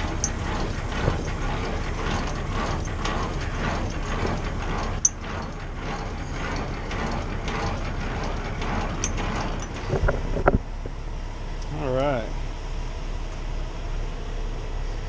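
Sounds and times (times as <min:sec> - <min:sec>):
crank clicking and ratcheting: 0:00.0 - 0:10.9.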